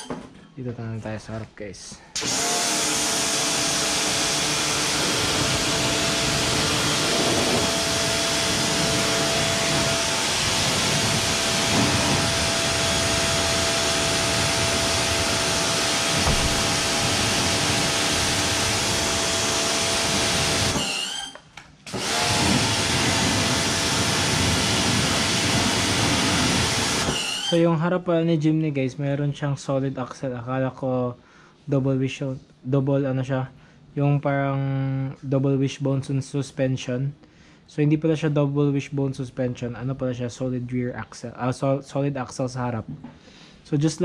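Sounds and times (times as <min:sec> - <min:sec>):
pressure washer motor humming: 0:02.2 - 0:21.2, 0:22.0 - 0:27.6
water jet spraying car: 0:05.3 - 0:19.0, 0:22.4 - 0:27.0.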